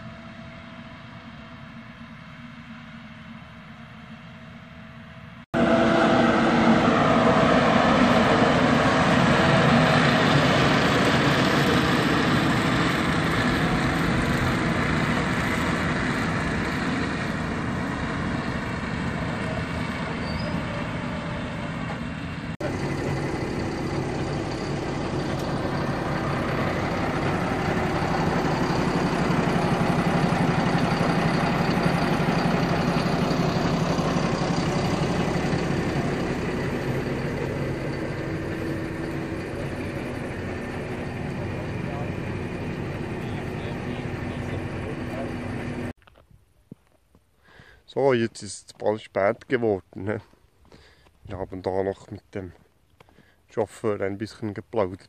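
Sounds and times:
tractor diesel engine: 0.0 - 46.2, 47.4 - 55.0.

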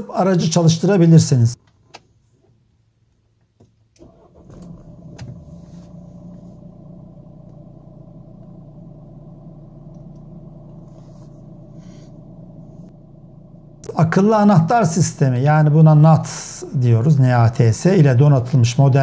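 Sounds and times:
car engine starting and idling: 4.0 - 19.0.

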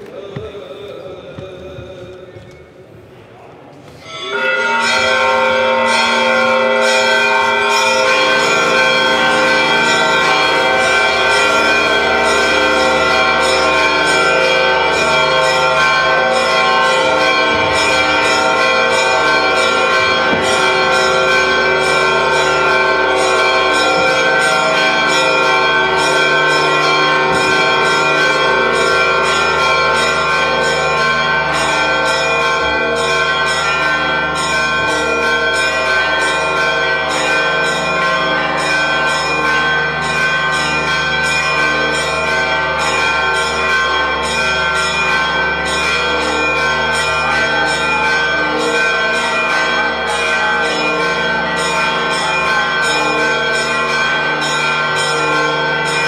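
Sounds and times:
church bells pealing: 3.9 - 56.0.

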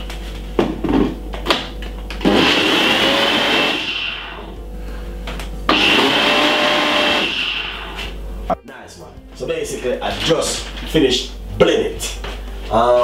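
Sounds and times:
blender motor whine: 2.2 - 4.6, 5.7 - 8.2.

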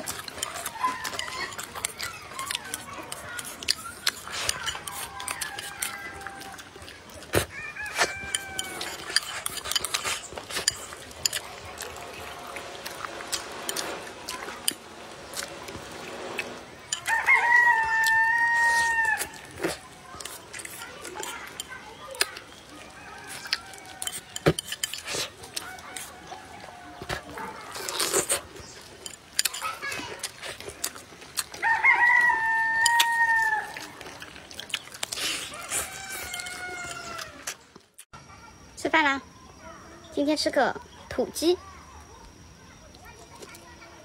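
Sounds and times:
chopsticks clicking against bowl: 0.0 - 7.0, 7.9 - 12.0, 23.4 - 26.2, 28.6 - 31.6, 32.8 - 35.2
rooster crowing: 4.8 - 6.9, 7.5 - 9.2, 17.0 - 19.5, 22.8 - 24.4, 31.5 - 34.0, 35.4 - 37.5.

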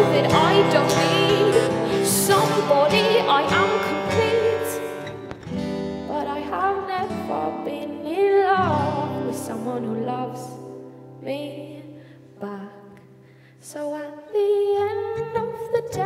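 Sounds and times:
woman singing: 0.0 - 5.3, 6.0 - 16.0
acoustic guitars: 0.0 - 16.0.

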